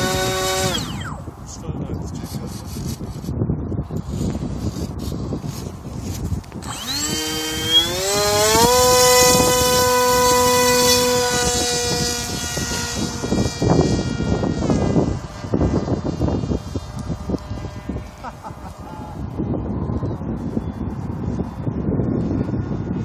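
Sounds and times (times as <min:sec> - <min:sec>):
model plane motor whine: 0:00.0 - 0:01.6, 0:04.0 - 0:19.3
wind buffeting microphone: 0:00.0 - 0:23.0.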